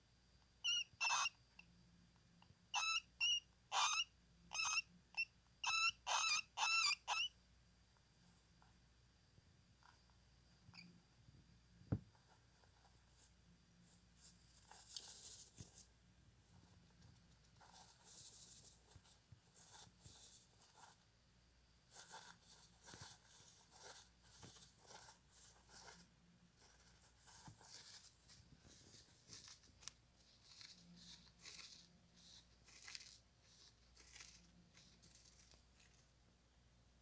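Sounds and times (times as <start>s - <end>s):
hamster rustling in wood shavings: 12.2s - 15.9s, 16.5s - 21.1s, 21.8s - 36.1s.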